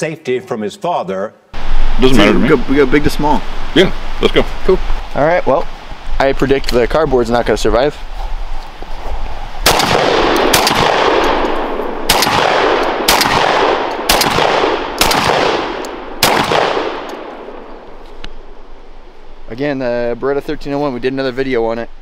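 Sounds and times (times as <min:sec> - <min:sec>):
shotgun blasts: 0:09.6 - 0:17.7.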